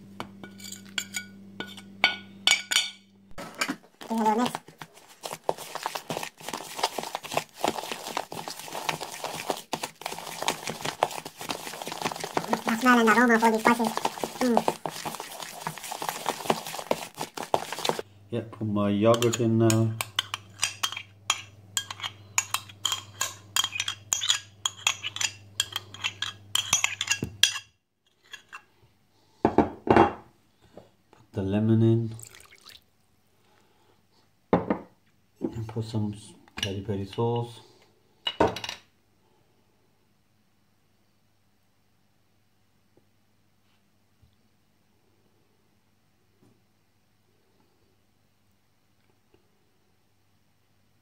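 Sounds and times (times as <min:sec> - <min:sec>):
metal spoon scraping in bowl: 0:00.4 - 0:01.9, 0:05.2 - 0:18.0, 0:19.1 - 0:28.6.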